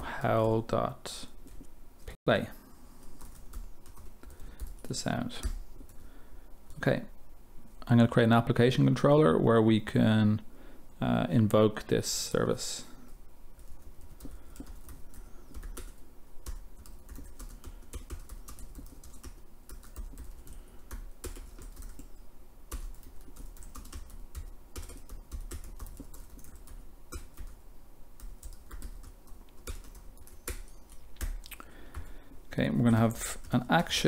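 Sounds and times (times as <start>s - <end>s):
typing on computer keyboard: 13.6s - 27.6s, 28.2s - 32.1s.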